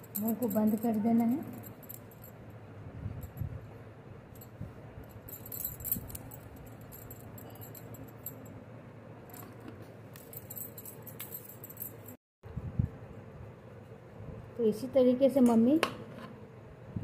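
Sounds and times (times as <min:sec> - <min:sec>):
bangles jingling: 0:00.0 - 0:08.6, 0:09.3 - 0:12.2.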